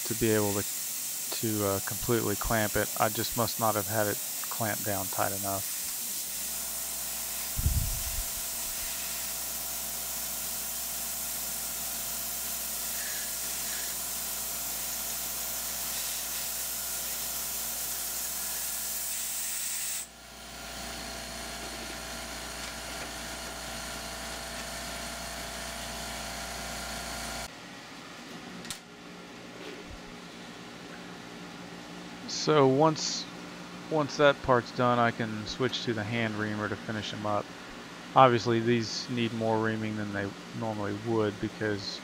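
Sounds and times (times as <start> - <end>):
coolant nozzle hissing: 0.0 - 20.1.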